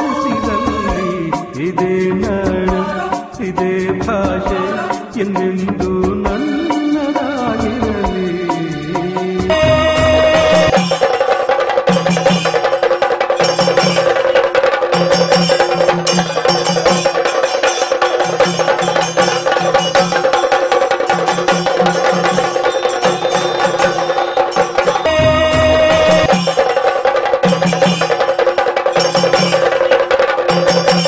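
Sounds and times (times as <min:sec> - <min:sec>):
low drum beats: 0:09.4 - 0:11.0, 0:24.9 - 0:26.6
sustained melody line: 0:09.5 - 0:10.8, 0:25.0 - 0:26.3.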